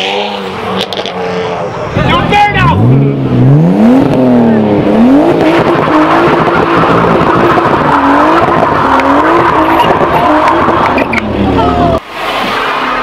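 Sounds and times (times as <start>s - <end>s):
car engine revving: 0.0s - 13.0s
tyres screeching: 4.4s - 12.0s.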